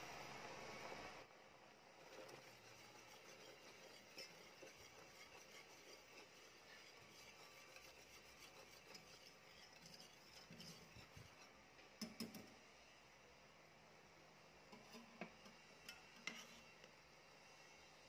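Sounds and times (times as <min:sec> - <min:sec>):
whisk stirring thick sauce: 0:02.0 - 0:11.5, 0:15.9 - 0:16.7
whisk clinking against pot: 0:02.0 - 0:12.4.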